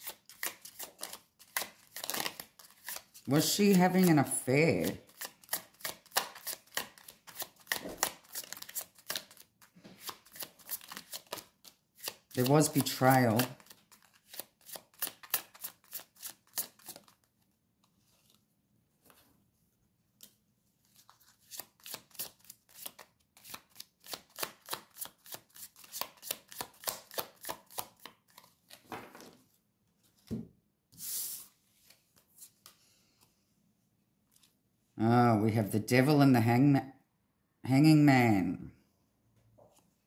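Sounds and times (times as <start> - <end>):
cards being shuffled: 0.0 - 18.4, 20.2 - 29.4.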